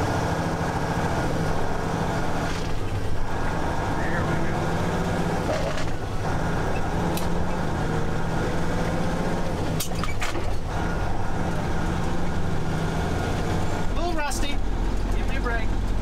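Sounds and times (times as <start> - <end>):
diesel truck engine running: 0.0 - 16.0.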